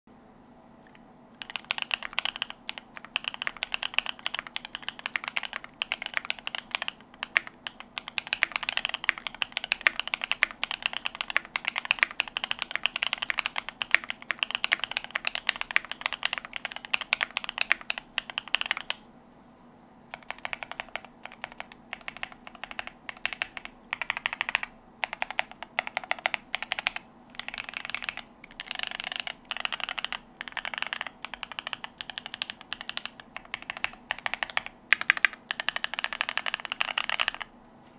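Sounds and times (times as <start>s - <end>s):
mechanical keyboard typing: 0.9s - 19.0s, 20.1s - 37.5s.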